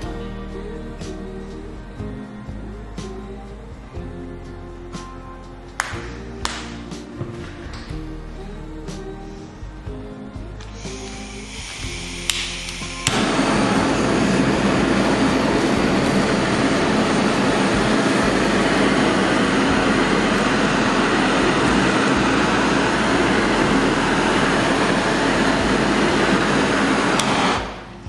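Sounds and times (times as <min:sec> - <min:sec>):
blowtorch flame hissing: 0:10.7 - 0:28.0.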